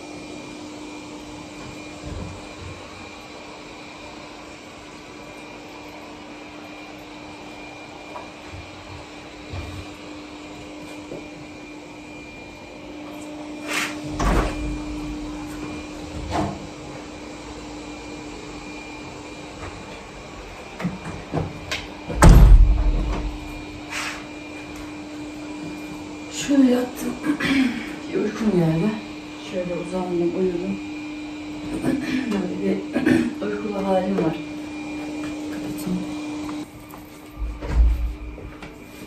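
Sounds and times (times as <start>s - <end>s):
machine hum with whine: 4.0s - 28.2s, 30.9s - 39.0s
knocks and thuds: 22.1s - 23.5s.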